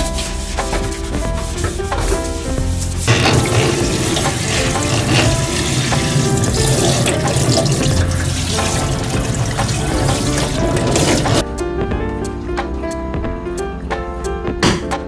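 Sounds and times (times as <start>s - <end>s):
background music: 0.0s - 15.0s
tap water running into metal sink: 3.1s - 11.4s.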